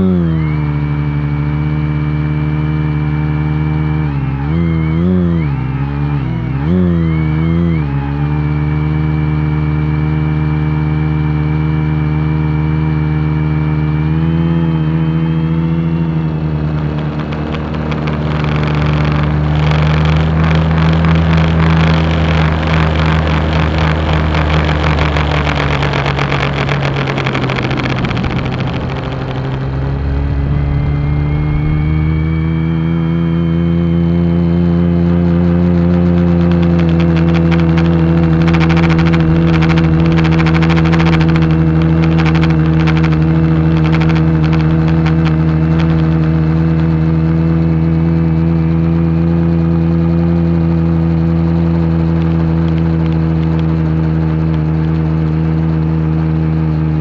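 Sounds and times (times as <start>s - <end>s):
drone propellers humming: 14.9s - 34.8s, 35.6s - 47.3s.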